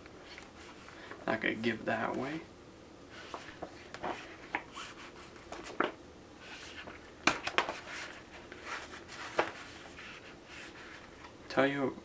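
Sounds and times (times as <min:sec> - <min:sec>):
book scraping and clicking: 0:03.2 - 0:11.3.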